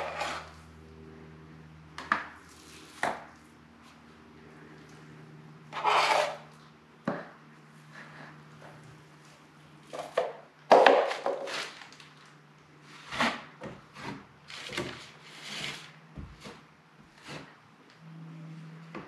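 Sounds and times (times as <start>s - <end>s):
taping knife scraping joint compound: 0.0s - 0.6s, 5.7s - 6.5s, 12.8s - 16.6s, 17.2s - 17.6s.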